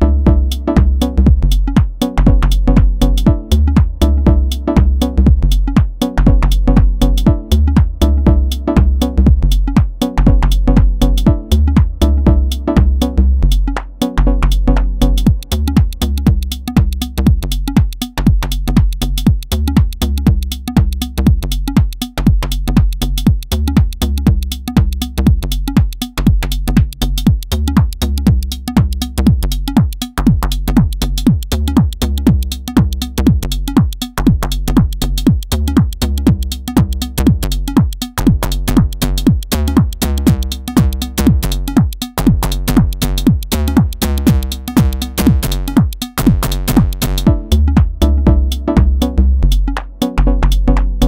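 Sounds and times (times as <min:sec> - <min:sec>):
looping electronic beat: 0:00.0 - 0:51.0.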